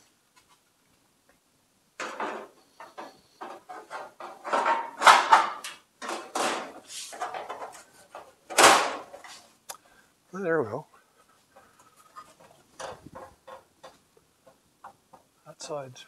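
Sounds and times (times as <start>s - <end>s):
sheet metal panels clanking: 2.0s - 9.4s.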